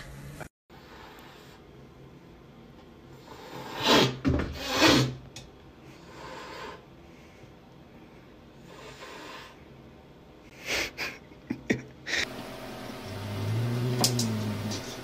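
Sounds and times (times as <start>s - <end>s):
cat hissing: 3.2s - 5.2s
cat growling yowl: 13.1s - 15.0s.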